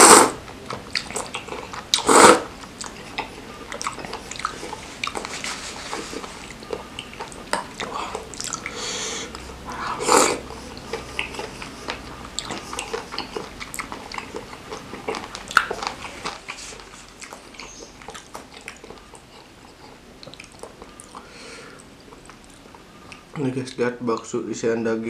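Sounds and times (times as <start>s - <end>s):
chewing with wet smacking: 0.4s - 24.8s.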